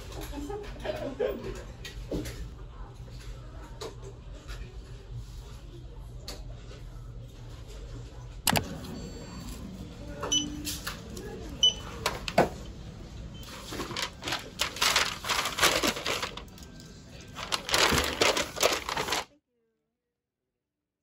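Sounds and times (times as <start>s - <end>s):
paper bag rustling: 13.4s - 19.3s.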